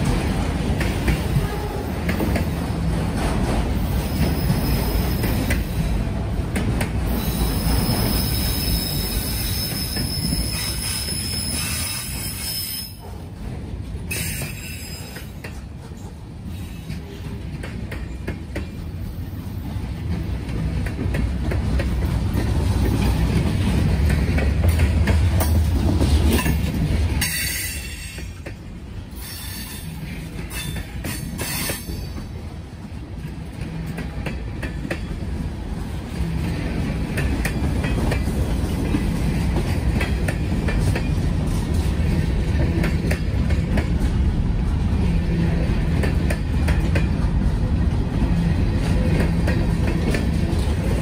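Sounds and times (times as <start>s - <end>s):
freight train wheels rumbling: 0.0s - 51.0s
high-pitched wheel squeals: 7.2s - 13.0s.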